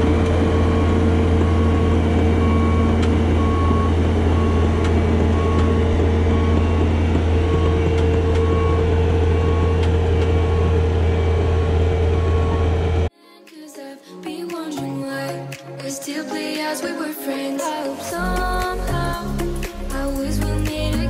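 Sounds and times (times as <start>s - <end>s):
backup alarm beeping: 0.0s - 13.1s
diesel engine running: 0.0s - 13.1s
music: 13.1s - 21.0s.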